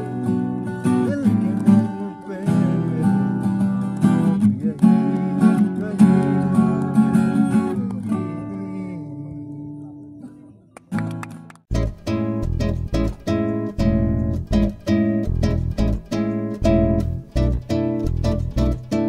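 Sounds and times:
acoustic guitar strumming: 0:00.0 - 0:19.0.

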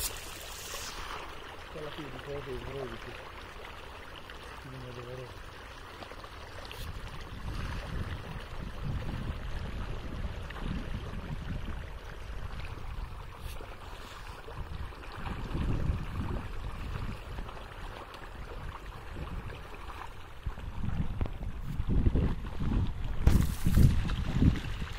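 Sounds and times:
fish splashing in water: 0:00.0 - 0:20.8, 0:22.3 - 0:24.9
wind buffeting microphone: 0:06.8 - 0:13.3, 0:14.5 - 0:17.8, 0:18.4 - 0:19.7, 0:20.4 - 0:24.9.

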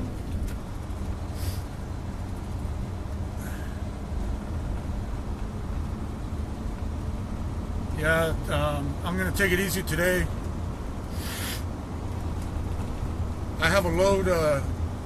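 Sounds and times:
diesel truck engine drone: 0:00.0 - 0:15.0
brief air hisses: 0:01.4 - 0:01.7, 0:11.1 - 0:11.7.

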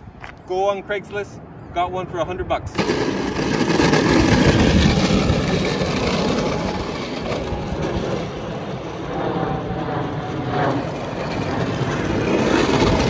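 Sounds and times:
electric go-kart rolling: 0:02.7 - 0:13.0.

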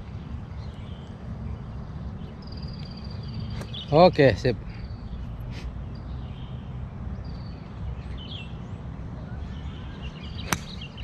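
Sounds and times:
bird chirps: 0:00.6 - 0:04.1, 0:09.4 - 0:11.0.

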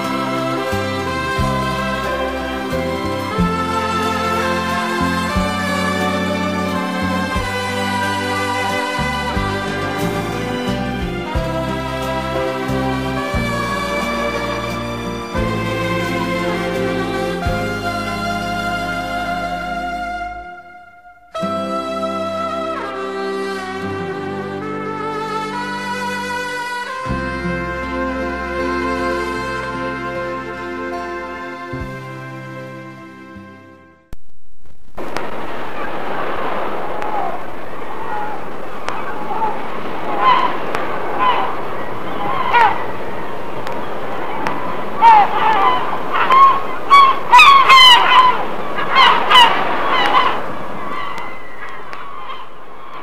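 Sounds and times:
gulls calling: 0:00.0 - 0:26.9, 0:35.2 - 0:53.0
instrumental music with held chords: 0:00.0 - 0:34.1
steady hiss: 0:34.2 - 0:45.0.

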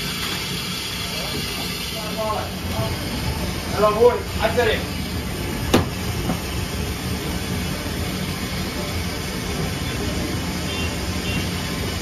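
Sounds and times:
machine rumble with low hum: 0:00.0 - 0:12.0.

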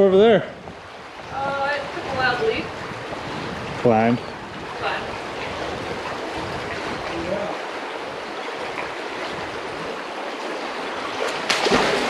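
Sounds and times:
river water flowing and lapping: 0:00.0 - 0:12.0.

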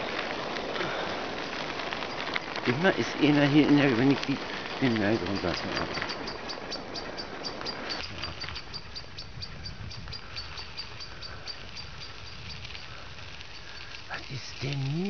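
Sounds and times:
bicycle tyres on gravel: 0:00.0 - 0:15.0
high bicycle ticking: 0:00.0 - 0:15.0
wind on microphone: 0:04.2 - 0:15.0.

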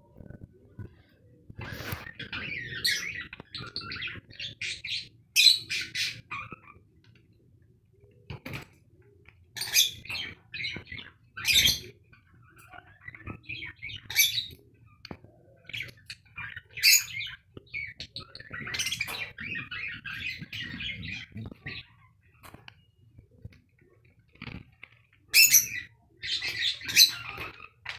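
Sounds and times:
budgerigars chirping: 0:01.6 - 0:06.8, 0:15.8 - 0:22.5, 0:25.4 - 0:27.9.

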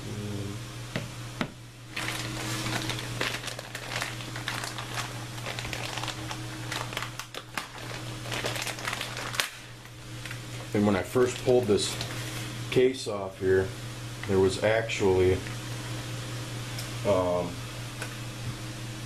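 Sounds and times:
steady low hum: 0:00.0 - 0:19.0
crinkling rustling handling noise: 0:01.9 - 0:12.6.

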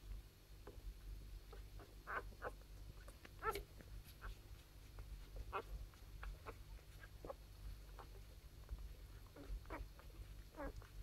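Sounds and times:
puppies squeaking and whimpering: 0:01.5 - 0:04.6, 0:05.2 - 0:11.0.

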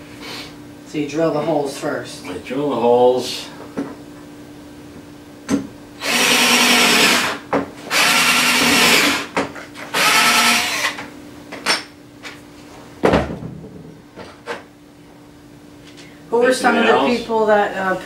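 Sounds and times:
power drill drilling: 0:06.0 - 0:09.3, 0:09.9 - 0:11.0.

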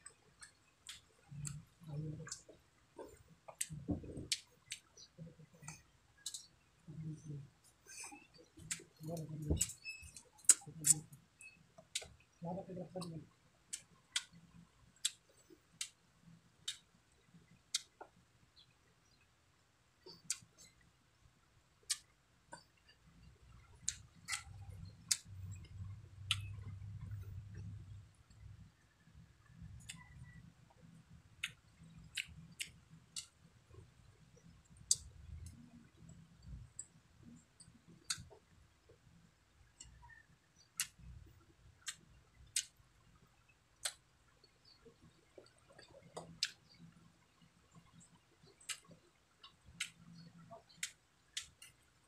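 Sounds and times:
low chewing rumble: 0:00.0 - 0:11.2, 0:21.8 - 0:52.0
wet mouth clicks: 0:00.4 - 0:11.2, 0:11.9 - 0:14.4, 0:20.1 - 0:20.7, 0:23.8 - 0:27.7, 0:29.8 - 0:30.4, 0:34.9 - 0:35.7, 0:38.0 - 0:38.4, 0:40.8 - 0:41.0, 0:41.8 - 0:42.8, 0:45.6 - 0:46.6, 0:48.6 - 0:51.8.

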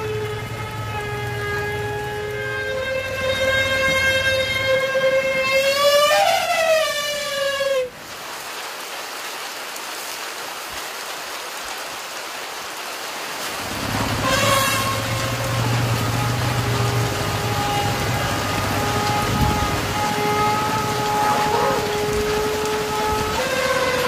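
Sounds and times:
elephant trumpeting: 0:00.0 - 0:08.0, 0:13.6 - 0:24.0
heavy rain hissing: 0:00.0 - 0:24.0.

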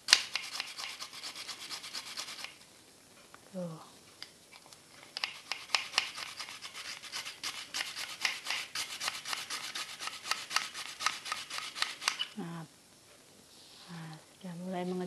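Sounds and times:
garlic grater rasping scrape: 0:00.3 - 0:02.5, 0:05.3 - 0:12.3.

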